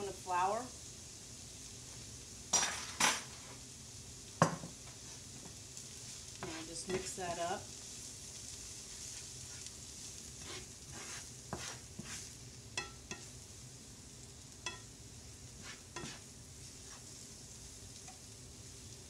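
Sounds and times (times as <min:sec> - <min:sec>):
vegetables sizzling in a skillet: 0:00.0 - 0:19.0
spatula clicking against pan: 0:12.8 - 0:13.3, 0:14.6 - 0:14.9.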